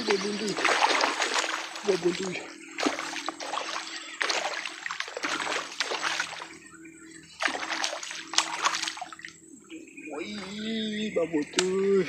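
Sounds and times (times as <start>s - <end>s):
fish thrashing water splashing: 0.0s - 6.6s, 7.4s - 9.4s.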